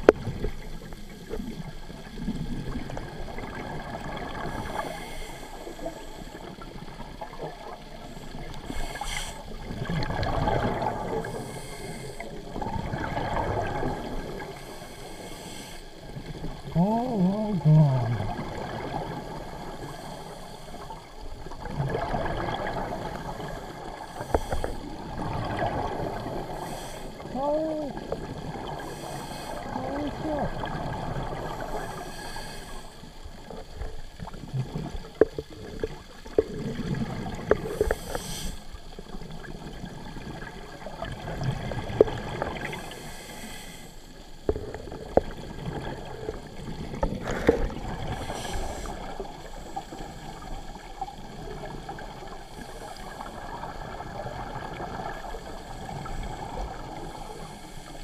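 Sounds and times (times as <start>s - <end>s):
exhaled bubbles underwater: 0.0s - 58.0s
low underwater rumble: 16.0s - 38.2s.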